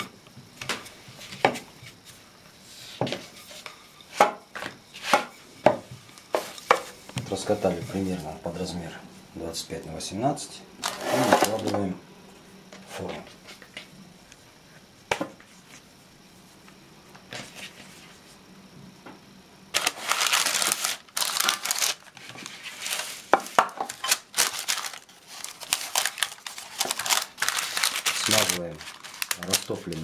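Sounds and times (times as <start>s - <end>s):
parchment paper crinkling: 19.8s - 30.0s.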